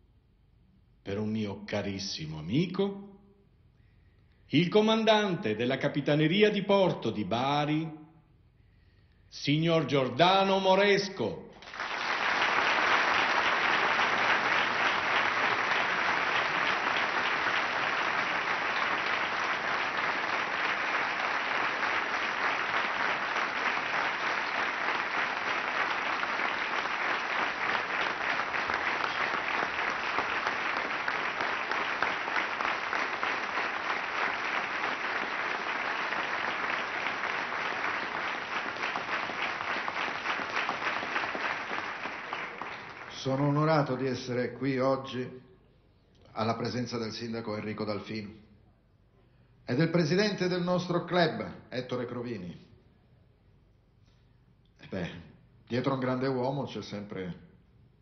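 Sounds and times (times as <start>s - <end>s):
audience applauding: 11.6s - 44.0s.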